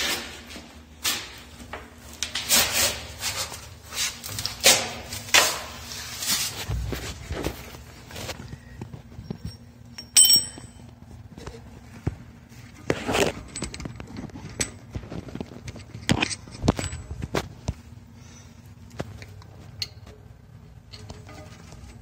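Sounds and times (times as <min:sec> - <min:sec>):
bright metallic clink: 0:09.5 - 0:10.8.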